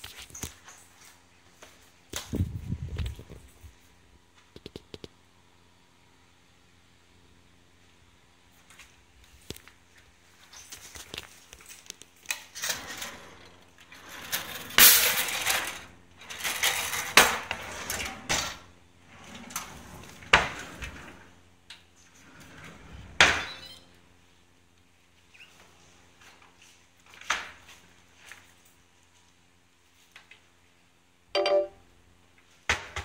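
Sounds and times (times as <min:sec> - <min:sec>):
drawers and cupboards opening and shutting: 0:12.5 - 0:21.3, 0:22.2 - 0:23.6.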